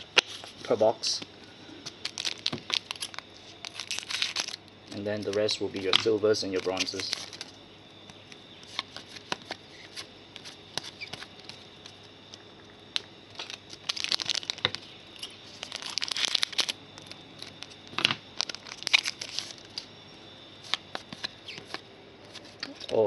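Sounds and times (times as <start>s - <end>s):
wrapper tearing and crinkling: 1.8s - 5.4s, 6.6s - 7.5s, 13.0s - 14.8s, 15.5s - 19.8s.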